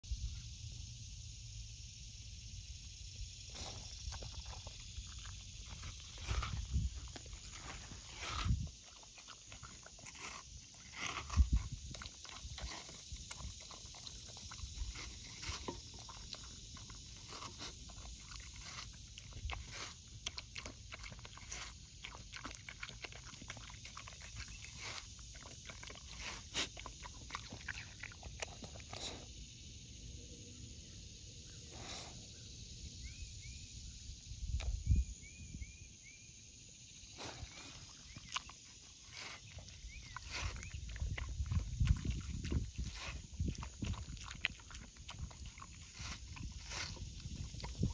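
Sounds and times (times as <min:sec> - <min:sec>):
dog licking and chewing: 0:03.5 - 0:29.3, 0:37.4 - 0:47.9.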